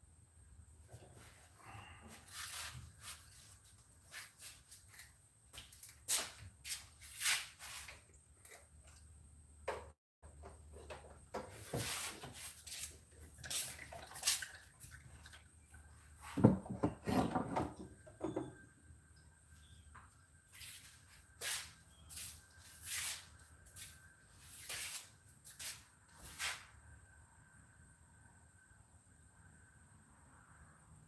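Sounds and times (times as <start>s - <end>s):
clunk: 16.3s - 18.6s
hands scuffing and rustling: 20.5s - 26.7s.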